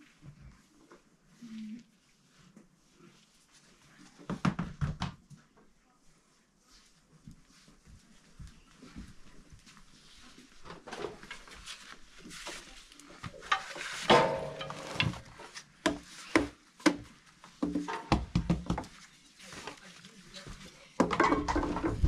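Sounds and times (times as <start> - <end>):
knocks taps and scrapes of utensils: 10.6 - 19.8, 20.5 - 22.0.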